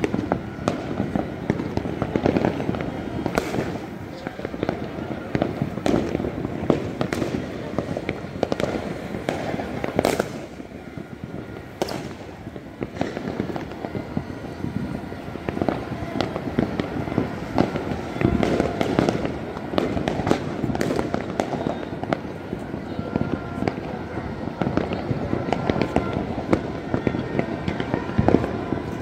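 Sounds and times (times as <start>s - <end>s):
firecracker bangs: 0.0s - 29.0s
fireworks crackling and popping: 0.0s - 29.0s.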